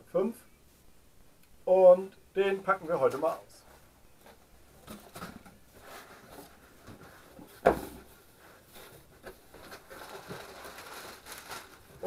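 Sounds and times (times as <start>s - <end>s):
cardboard rustling and scraping: 3.7s - 12.0s.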